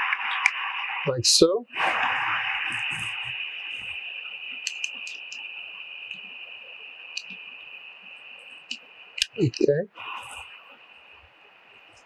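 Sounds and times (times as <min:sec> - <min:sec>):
steady high hiss: 0:00.0 - 0:12.0
small plastic clicks: 0:04.6 - 0:05.4.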